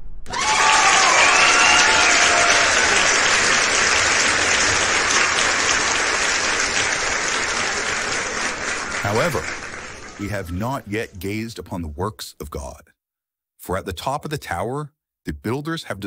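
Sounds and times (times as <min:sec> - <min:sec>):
crowd cheering and applauding: 0:00.2 - 0:10.6.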